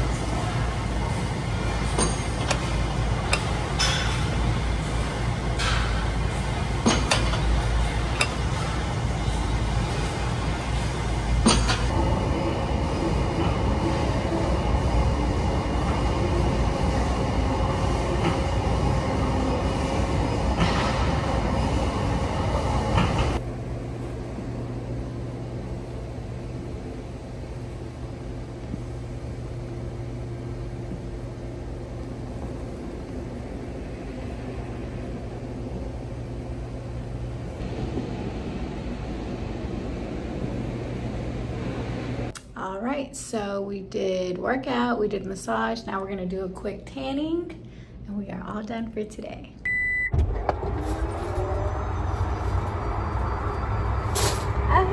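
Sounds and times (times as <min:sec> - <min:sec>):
massage chair motors humming: 0:00.0 - 0:42.4, 0:49.7 - 0:54.9.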